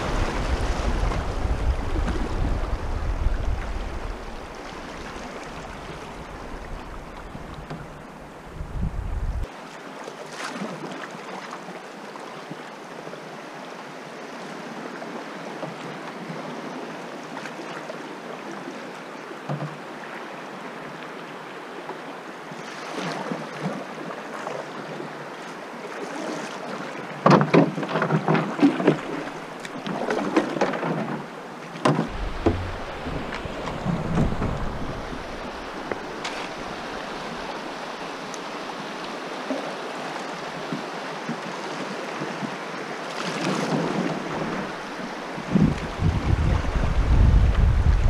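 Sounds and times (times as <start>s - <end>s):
wind on microphone: 0.0s - 9.5s, 32.1s - 37.9s, 44.1s - 48.0s
river water rushing and lapping: 0.0s - 48.0s
canoe knocking on gravel: 31.9s - 37.4s.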